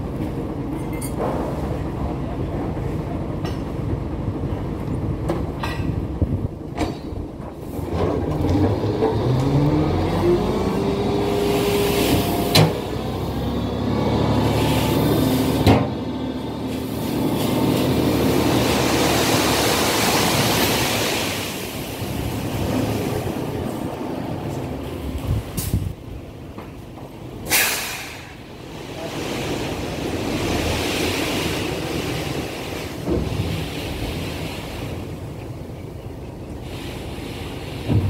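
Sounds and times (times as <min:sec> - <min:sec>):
diesel engine revving: 0:07.7 - 0:26.0
sand sliding out hiss: 0:27.5 - 0:28.3.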